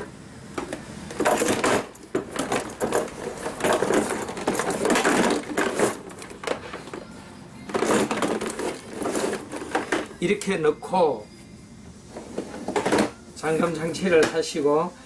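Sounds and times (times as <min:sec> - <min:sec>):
cardboard boxes rustling: 0:01.2 - 0:07.1, 0:07.8 - 0:10.2.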